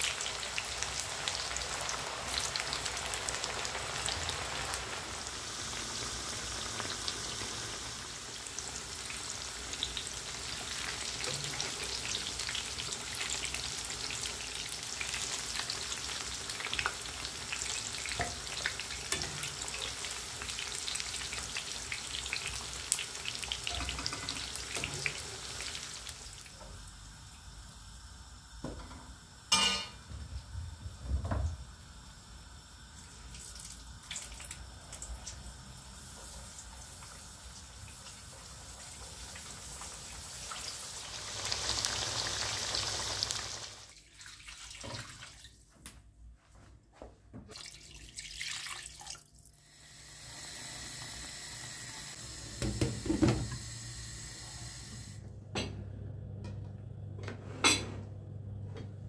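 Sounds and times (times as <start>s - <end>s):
tap water running into sink: 52.6s - 53.6s.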